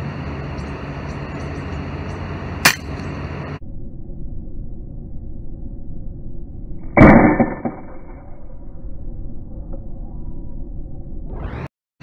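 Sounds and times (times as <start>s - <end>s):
air rifle shot: 6.9s - 8.0s.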